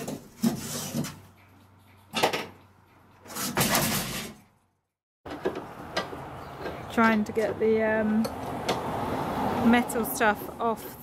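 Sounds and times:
sheet metal panel scraping and banging: 0:03.3 - 0:04.4.

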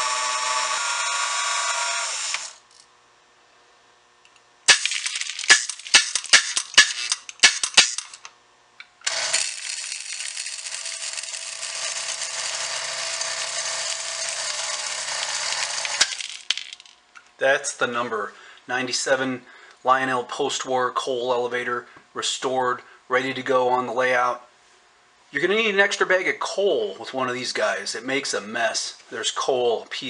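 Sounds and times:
small electric motor running: 0:00.0 - 0:02.8, 0:09.0 - 0:16.5.

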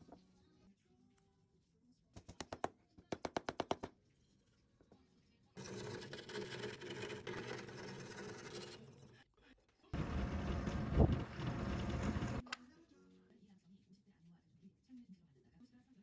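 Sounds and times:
scroll saw cutting wood: 0:05.6 - 0:09.1, 0:10.0 - 0:12.4.

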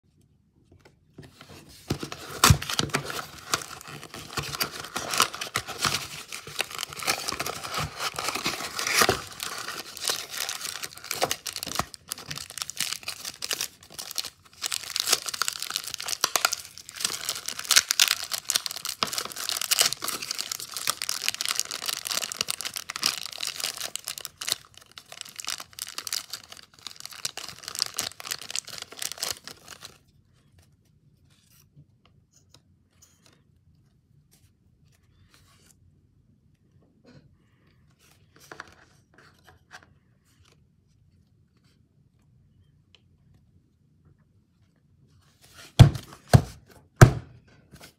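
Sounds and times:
cardboard box tearing open: 0:01.9 - 0:24.5
plastic bag crinkling: 0:01.9 - 0:30.0.

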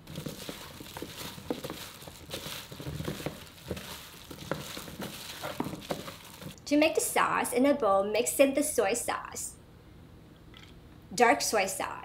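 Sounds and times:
hands rustling and squishing food: 0:00.0 - 0:06.6.

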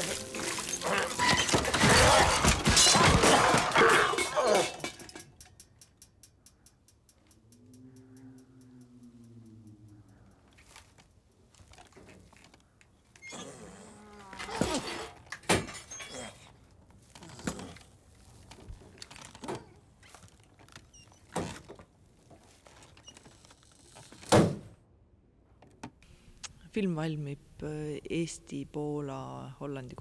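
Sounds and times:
wood creaking: 0:00.0 - 0:05.0, 0:10.2 - 0:24.6.

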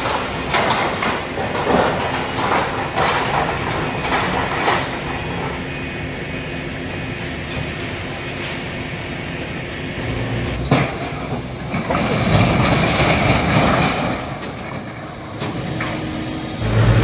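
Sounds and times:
metallic clanks of debris: 0:00.0 - 0:05.4, 0:10.6 - 0:16.0
heavy machine engine running: 0:00.0 - 0:17.0.

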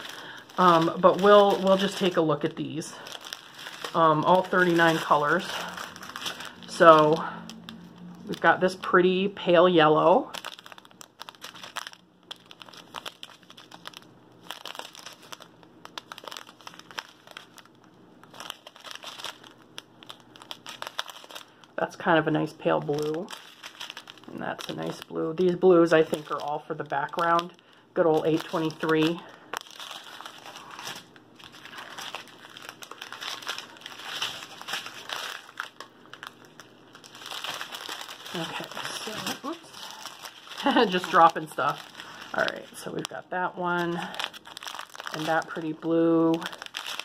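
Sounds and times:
plastic bags crinkling: 0:00.0 - 0:47.0.

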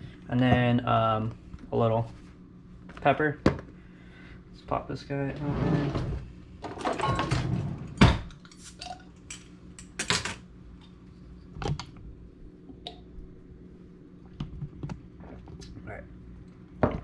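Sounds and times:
metal utensils clattering: 0:06.6 - 0:08.1.

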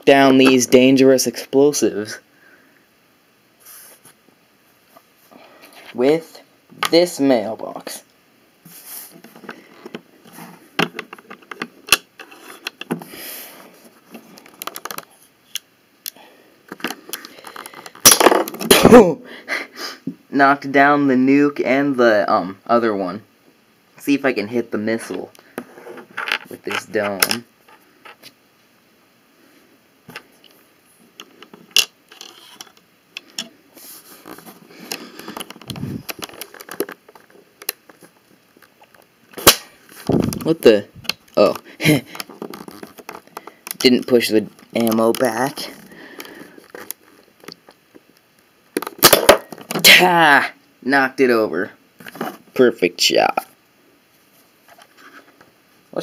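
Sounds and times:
plastic pieces clicking and scraping: 0:14.1 - 0:18.7, 0:31.2 - 0:33.5, 0:34.2 - 0:47.8, 0:48.8 - 0:49.9
plastic pieces rattling: 0:35.2 - 0:38.0
toy launcher snapping: 0:39.4 - 0:39.7.

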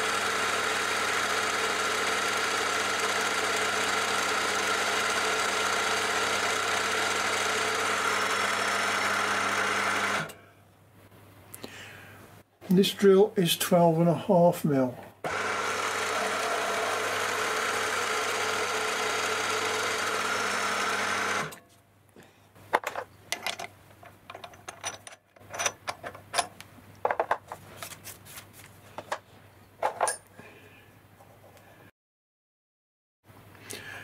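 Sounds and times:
drilling machine whine: 0:00.0 - 0:10.4, 0:15.2 - 0:21.6.

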